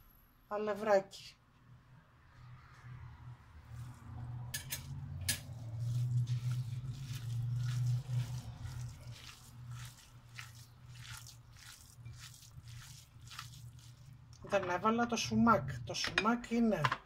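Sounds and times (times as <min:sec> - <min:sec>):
wet squelches of kneading meat: 0:02.3 - 0:15.1.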